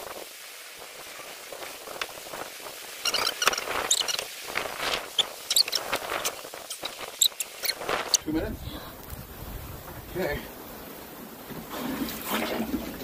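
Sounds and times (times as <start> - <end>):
steady hiss: 0.0 - 11.7
high squeaky blips: 3.0 - 4.3, 5.1 - 8.3
water sloshing and splashing: 11.2 - 13.0.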